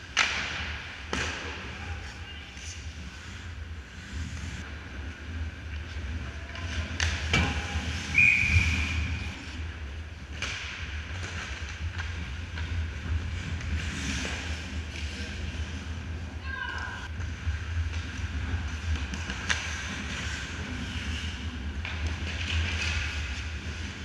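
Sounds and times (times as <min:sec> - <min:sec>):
hockey sticks and puck knocking: 0:00.1 - 0:01.6, 0:06.5 - 0:08.7, 0:10.3 - 0:15.2, 0:16.7 - 0:21.2
skate blades scraping ice: 0:00.2 - 0:24.0.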